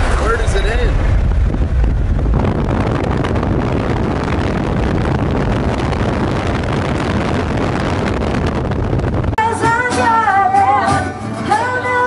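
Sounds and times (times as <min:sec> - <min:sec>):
wind buffeting microphone: 0:00.0 - 0:09.4.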